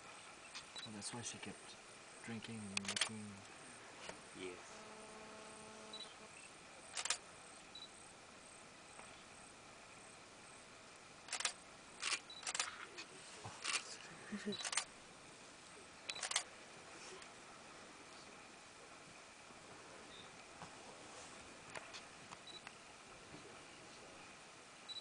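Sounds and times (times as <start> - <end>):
camera shutters clicking: 2.8 - 3.2, 7.0 - 7.2, 11.3 - 12.8, 13.6 - 13.9, 14.6 - 14.9, 16.1 - 16.5.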